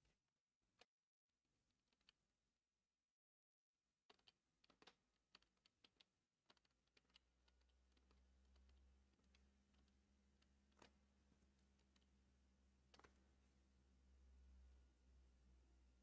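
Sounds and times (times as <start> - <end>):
faint clicks: 4.1 - 13.8
faint low hum: 6.5 - 16.0.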